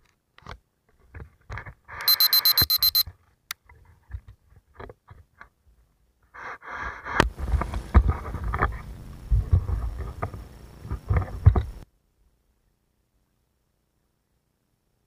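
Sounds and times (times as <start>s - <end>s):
high electronic beeps: 2.0s - 3.0s.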